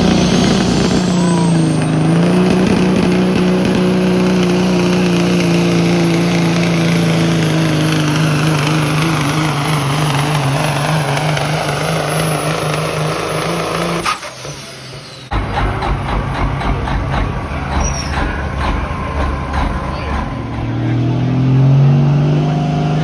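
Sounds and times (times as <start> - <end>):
truck diesel engine at full throttle: 0.0 - 23.0.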